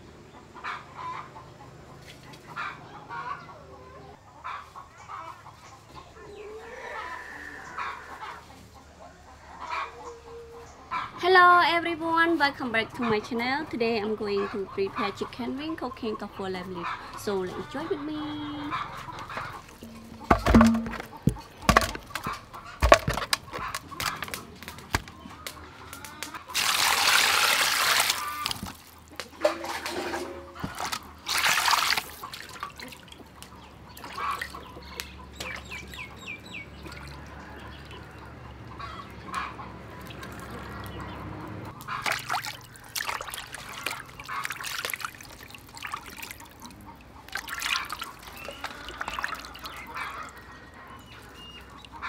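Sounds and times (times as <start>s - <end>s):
water splashing in metal basin: 19.5s - 24.2s, 26.5s - 33.2s, 33.9s - 34.6s, 36.8s - 38.3s, 40.0s - 41.0s, 41.8s - 50.4s.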